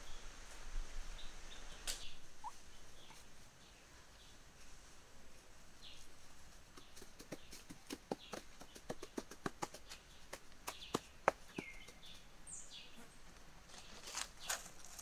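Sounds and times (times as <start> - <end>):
hands working grass and soil: 1.8 - 12.3, 12.9 - 15.0
bird chirps: 9.8 - 13.1
rustling: 13.0 - 15.0.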